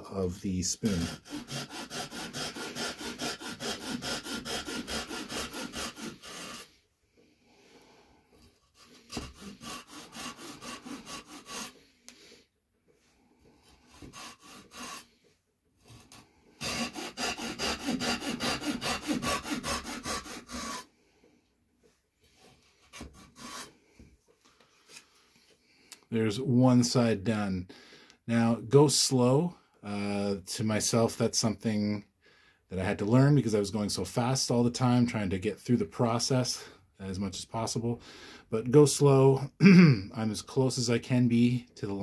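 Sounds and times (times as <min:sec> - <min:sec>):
hand saw cutting wood: 0:00.2 - 0:06.8, 0:08.6 - 0:11.9, 0:13.6 - 0:15.2, 0:15.9 - 0:20.9, 0:22.4 - 0:23.8.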